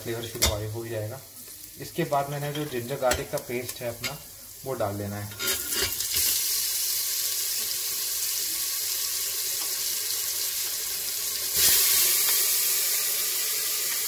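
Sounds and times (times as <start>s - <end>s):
spices sizzling in hot oil: 0.0s - 14.0s
burst of steam hissing: 11.5s - 14.0s.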